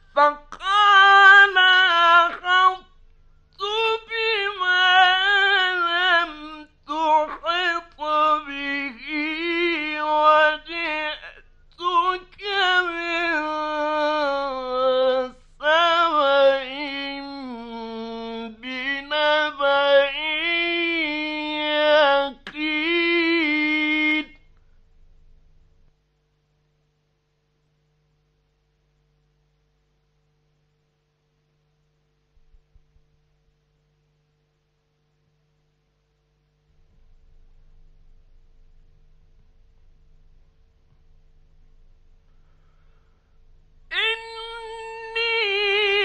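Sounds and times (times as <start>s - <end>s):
man chanting melodically: 0.2s - 2.9s, 3.6s - 24.4s.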